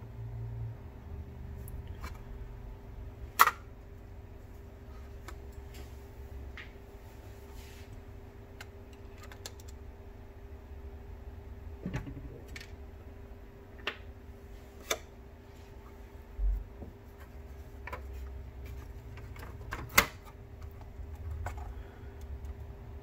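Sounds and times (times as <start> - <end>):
steady hum: 0.0 - 23.0
plastic parts clicking and tapping: 8.6 - 9.8.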